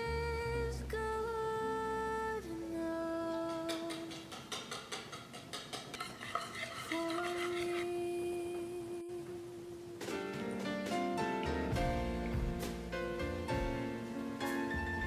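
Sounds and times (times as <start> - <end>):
whisk clinking in ceramic bowl: 3.7 - 7.8
soft background music: 9.8 - 15.0.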